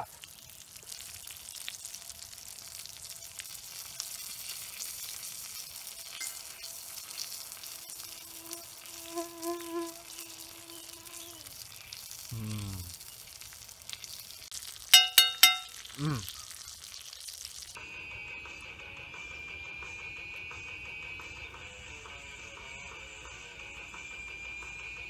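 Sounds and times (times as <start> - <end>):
steak sizzling: 0.0 - 17.8
mosquito humming: 8.0 - 11.5.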